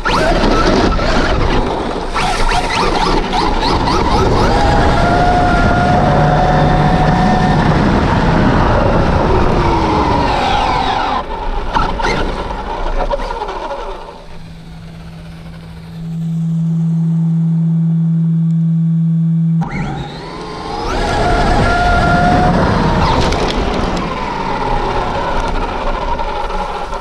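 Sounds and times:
tyre and road noise: 0:00.0 - 0:17.1, 0:19.6 - 0:27.0
electric motor whine: 0:00.0 - 0:27.0
steady low hum: 0:01.6 - 0:21.2.

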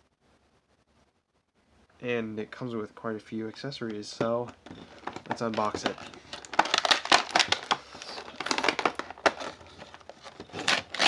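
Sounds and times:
cardboard box tearing and crushing: 0:05.0 - 0:11.0.

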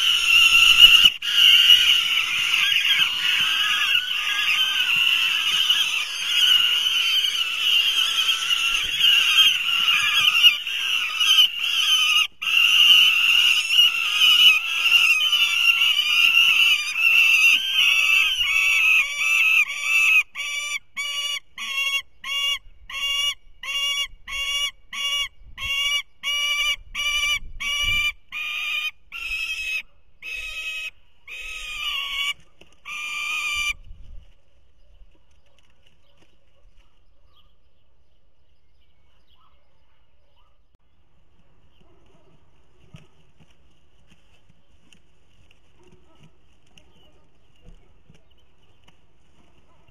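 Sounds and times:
young falcons screaming: 0:00.0 - 0:33.8.

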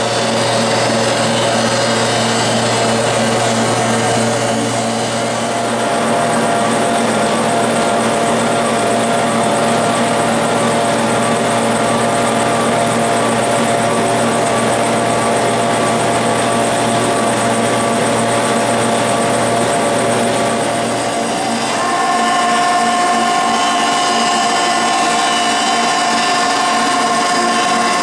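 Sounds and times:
steady hum tones: 0:00.0 - 0:28.0
steady mechanical running noise: 0:00.0 - 0:28.0.

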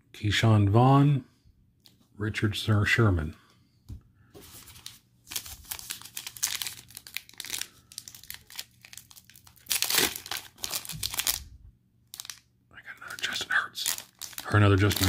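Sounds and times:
foil wrapper crinkling and tearing: 0:04.6 - 0:11.5, 0:12.1 - 0:12.5, 0:13.1 - 0:15.0.

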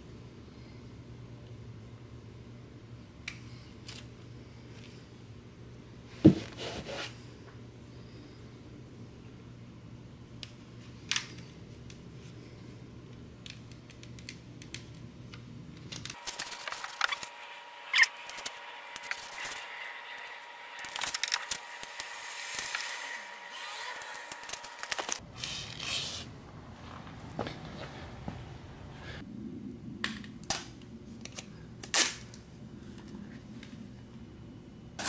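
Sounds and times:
tape crinkling and scraping: 0:15.8 - 0:26.3.

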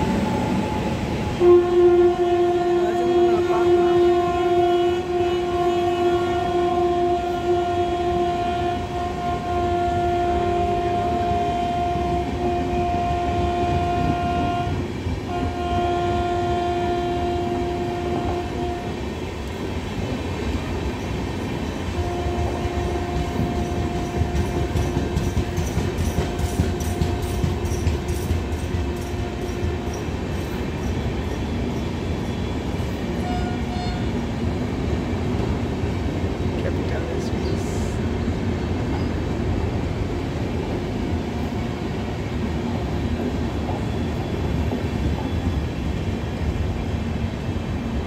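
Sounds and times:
train wheels rumbling: 0:00.0 - 0:48.0
locomotive horn blasts: 0:00.7 - 0:19.0, 0:21.9 - 0:30.2, 0:33.2 - 0:34.2.

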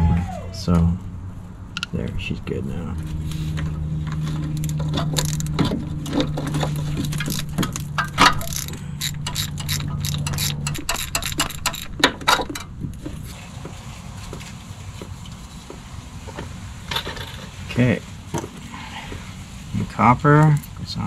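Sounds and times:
metal tools clicking and tapping: 0:04.6 - 0:13.2.

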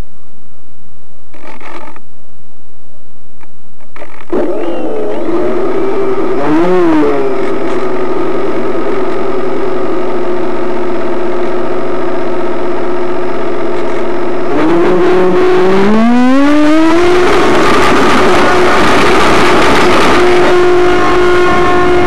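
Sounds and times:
ducted-fan motors whining: 0:04.3 - 0:12.2.

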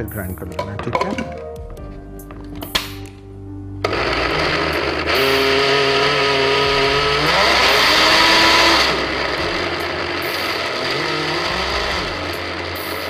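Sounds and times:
electric grinder whining: 0:03.8 - 0:13.0.

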